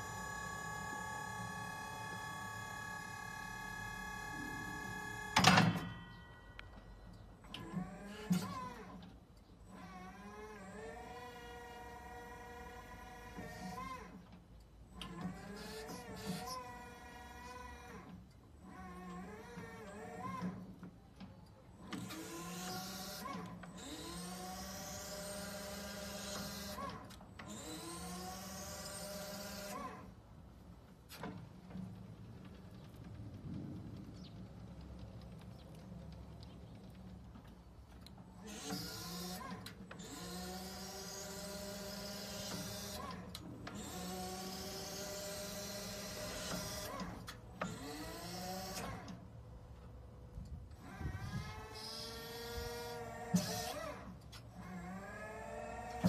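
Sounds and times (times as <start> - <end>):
hydraulic pump motor whining: 0.0 - 5.9, 9.7 - 30.2, 37.9 - 56.0.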